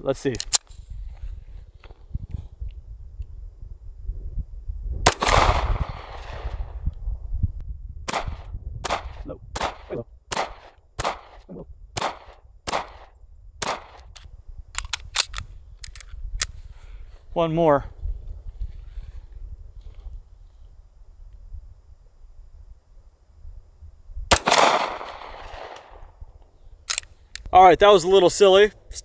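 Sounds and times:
light gun clicks: 0:00.3 - 0:00.8, 0:13.6 - 0:16.6, 0:26.9 - 0:27.5
pistol shots with echo: 0:05.1 - 0:06.6, 0:08.1 - 0:14.1, 0:24.3 - 0:26.0.

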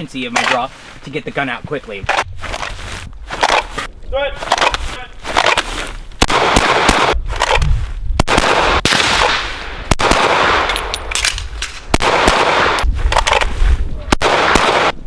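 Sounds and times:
pistol gunshots: 0:06.2 - 0:07.6, 0:08.2 - 0:13.5, 0:14.1 - 0:15.0.

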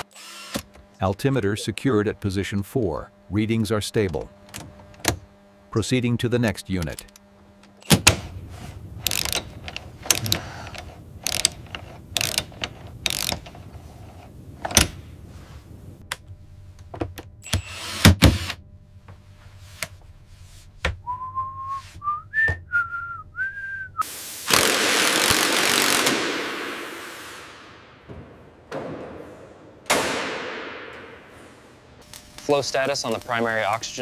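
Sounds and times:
hand tools clicking and clanking: 0:09.0 - 0:14.9
person whistling: 0:21.0 - 0:24.0.

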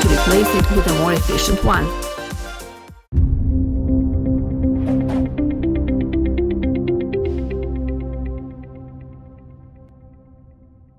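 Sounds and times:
electronic music: 0:00.0 - 0:02.8
whoosh: 0:03.2 - 0:05.6.

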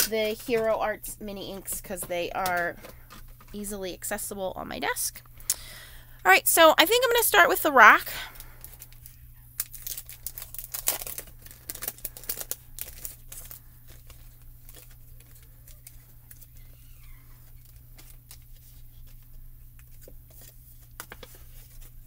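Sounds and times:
plastic packaging crinkling: 0:08.4 - 0:22.0.

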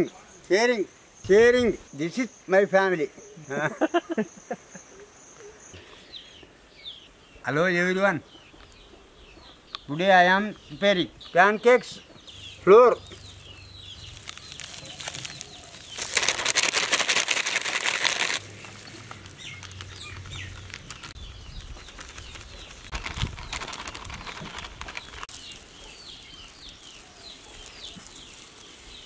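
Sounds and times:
small birds chirping: 0:00.0 - 0:29.0
plastic packet crinkling: 0:14.0 - 0:25.7.

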